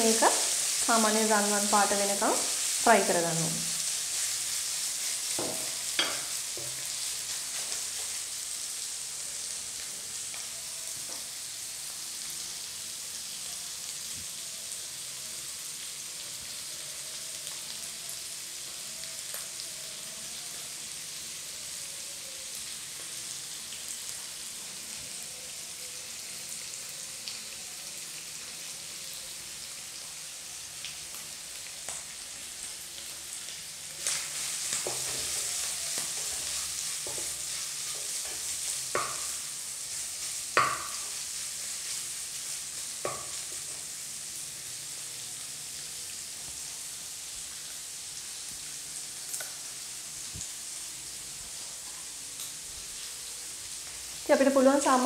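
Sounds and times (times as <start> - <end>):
chicken sizzling in pan: 0.0 - 55.0
spatula scraping and tapping pan: 5.3 - 6.9, 34.0 - 39.4, 40.6 - 41.2.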